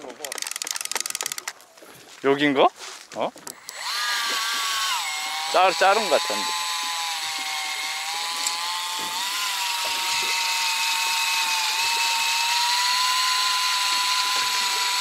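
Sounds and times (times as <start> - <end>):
electric motor whining: 3.5 - 15.0.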